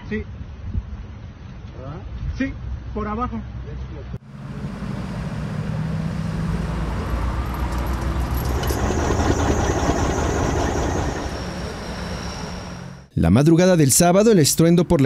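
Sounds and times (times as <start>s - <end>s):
road traffic noise: 4.2s - 13.1s
vehicle engines running: 4.2s - 13.1s
faint high whine: 4.3s - 13.1s.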